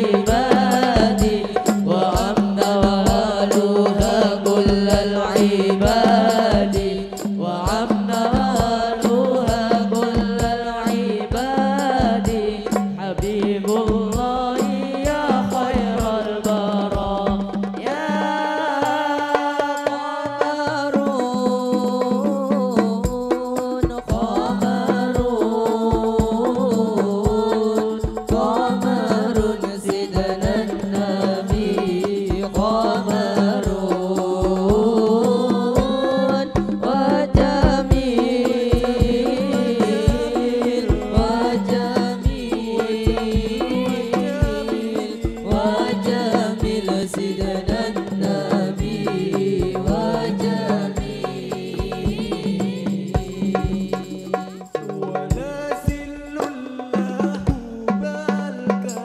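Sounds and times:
group singing devotional song: 0.0s - 59.0s
frame drum strokes: 23.1s - 58.1s.

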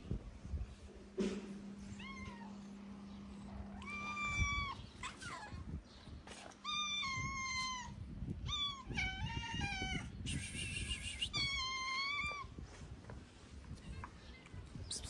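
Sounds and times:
cat meowing loudly: 3.7s - 5.3s.

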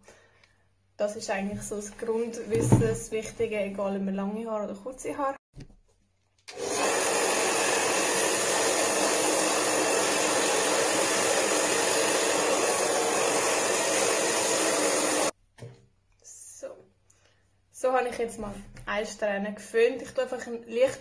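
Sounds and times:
hair dryer blowing: 6.5s - 15.4s.

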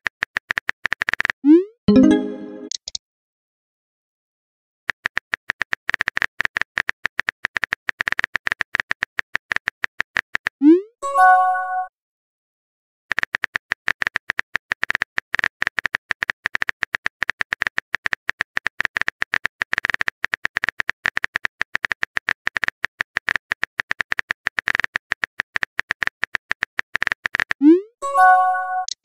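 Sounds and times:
keyboard typing clicks: 1.9s - 3.0s, 28.3s - 29.0s.

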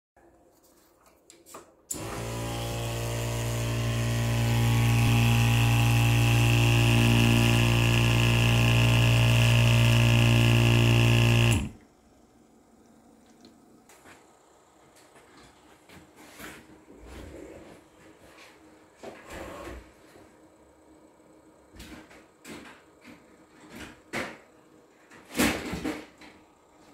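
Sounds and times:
electric machine humming buzz: 1.9s - 13.9s.

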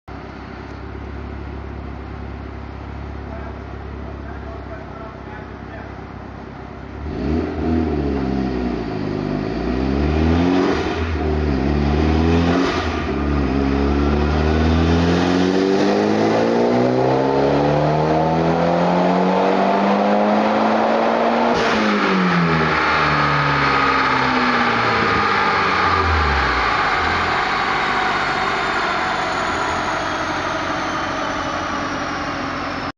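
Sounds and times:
turbocharged car engine revving: 6.9s - 32.9s
dyno rollers whining down: 10.4s - 32.9s.

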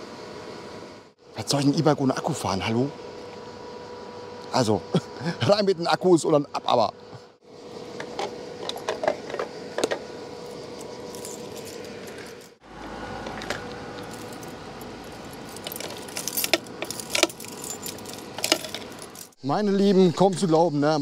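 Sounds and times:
keys jangling: 10.8s - 12.6s, 13.3s - 19.4s.

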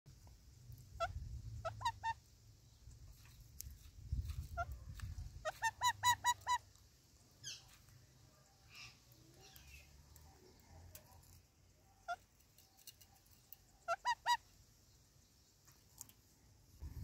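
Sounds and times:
parakeet squawking: 5.4s - 6.7s, 13.8s - 14.5s.

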